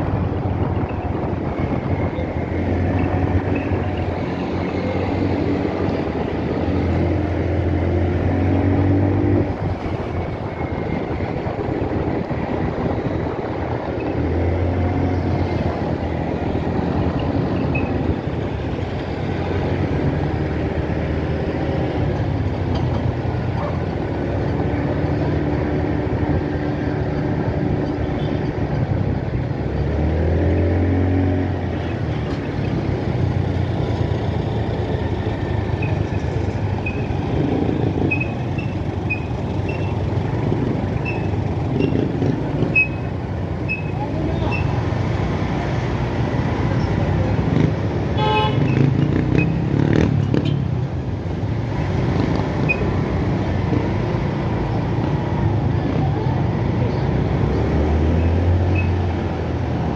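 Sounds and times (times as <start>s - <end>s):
road and traffic noise: 0.0s - 59.9s
motorcycle engine revving: 23.4s - 55.3s.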